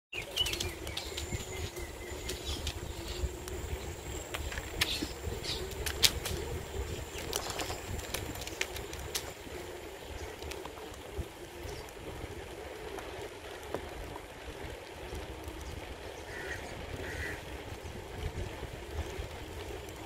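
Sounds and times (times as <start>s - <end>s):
bicycle rolling on pavement: 0.1s - 20.0s
wind buffeting microphone: 0.2s - 20.0s
faint ticks: 0.3s - 20.0s.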